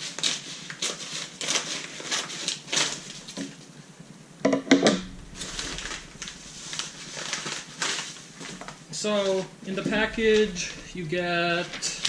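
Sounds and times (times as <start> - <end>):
paper mailer tearing and crinkling: 0.0 - 3.6.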